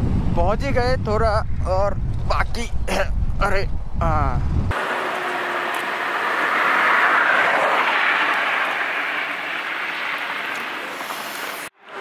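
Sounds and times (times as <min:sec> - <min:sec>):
vehicle passing on highway: 0:04.7 - 0:12.0.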